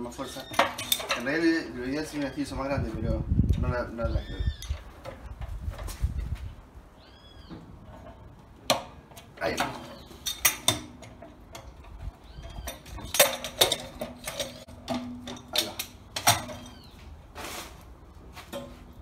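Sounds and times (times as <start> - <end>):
pipe wrench clanking on metal: 0.2 - 2.5, 7.8 - 16.9
metal scraping: 7.8 - 19.0.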